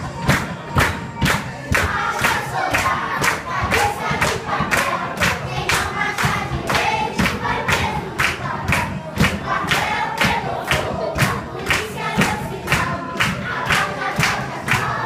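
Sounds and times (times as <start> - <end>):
group singing children's song: 0.0 - 15.0
sharp steady beat: 0.0 - 15.0.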